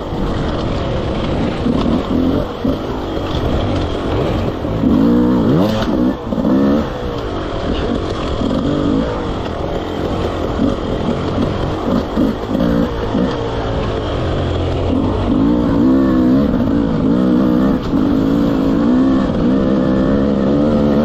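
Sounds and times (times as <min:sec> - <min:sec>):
dirt bike engine revving: 0:00.0 - 0:21.0.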